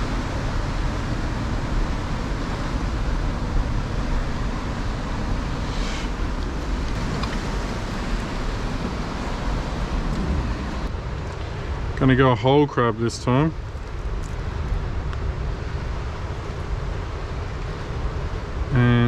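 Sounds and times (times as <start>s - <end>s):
wind buffeting microphone: 0.0s - 12.0s
ocean surf churning: 0.0s - 19.0s.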